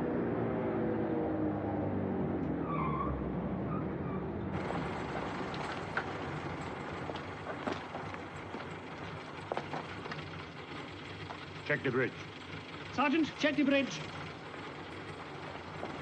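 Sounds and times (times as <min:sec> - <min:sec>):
brake squeal: 0:02.5 - 0:16.0
truck engines idling: 0:04.4 - 0:16.0
clunks and knocks: 0:04.6 - 0:11.7, 0:14.0 - 0:16.0.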